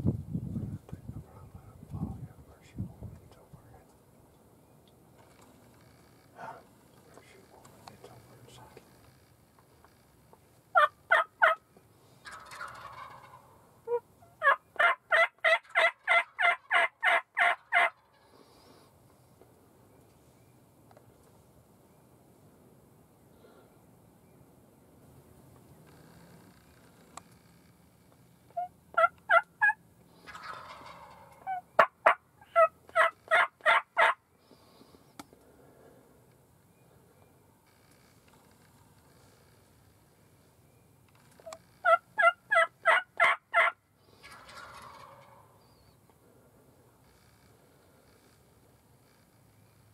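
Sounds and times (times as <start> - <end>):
turkey yelping: 10.7 - 11.6, 12.2 - 18.1, 28.6 - 34.2, 41.4 - 45.9.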